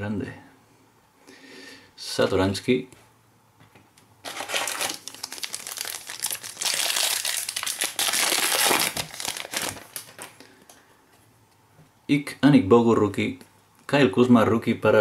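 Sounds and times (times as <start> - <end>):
foil wrapper crinkling: 4.2 - 10.5.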